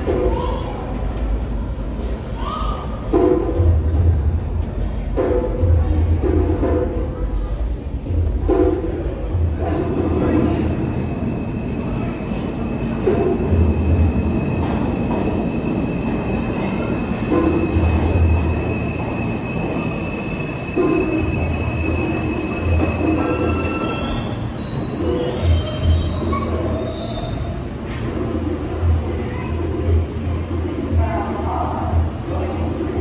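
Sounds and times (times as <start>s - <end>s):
subway train low rumble: 0.0s - 33.0s
high-pitched wheel squeal: 14.7s - 27.6s.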